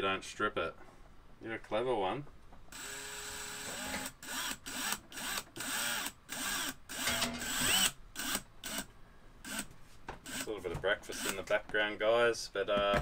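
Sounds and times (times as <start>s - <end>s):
cordless drill driving a screw: 2.7s - 10.5s.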